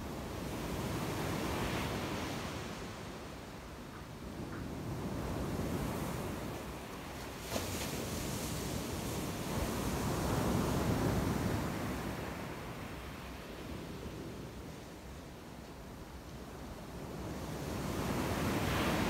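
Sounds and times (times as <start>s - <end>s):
waves breaking on beach: 5.0s - 13.6s, 17.5s - 19.0s.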